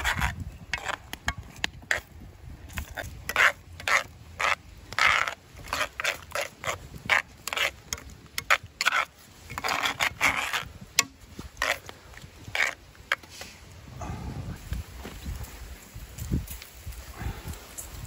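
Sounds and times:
fork and spoon scraping a skillet: 2.7 - 11.8.

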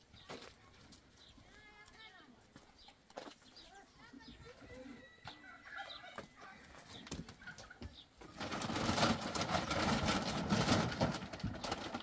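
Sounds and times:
plastic sack rustling: 8.2 - 12.0.

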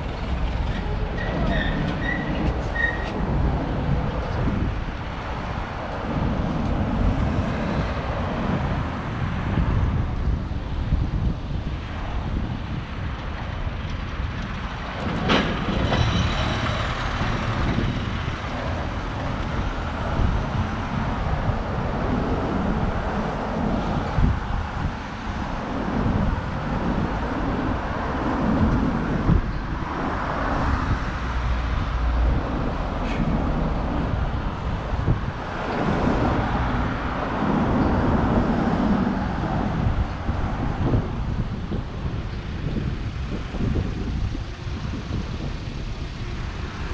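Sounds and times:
vehicles driving past: 0.0 - 46.9.

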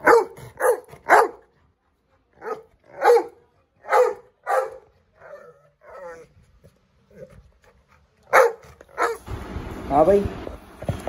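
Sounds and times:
dog barking: 0.0 - 1.5, 2.4 - 6.2, 8.3 - 9.2.

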